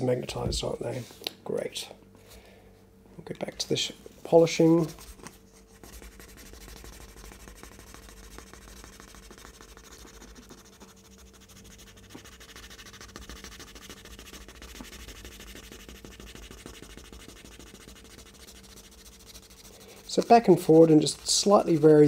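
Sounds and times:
sanding on sandpaper: 5.8s - 22.0s.

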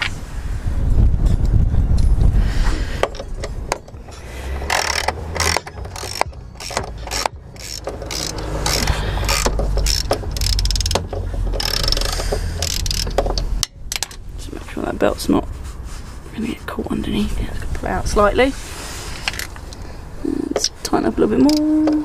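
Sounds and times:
ratchet wrench clicking: 3.0s - 14.2s, 19.2s - 19.6s.

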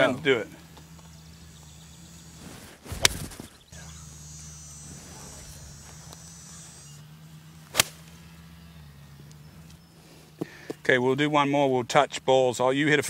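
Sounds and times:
golf club swishing through air: 2.3s - 3.6s
golf club hitting ball: 7.6s - 8.2s.

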